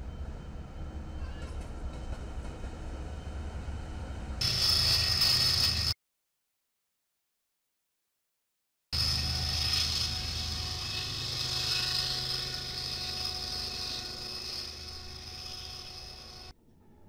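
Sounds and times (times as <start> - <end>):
steady high-pitched tone: 3.1 - 6.0, 9.0 - 17.0
locomotive engine rumble: 9.0 - 16.5.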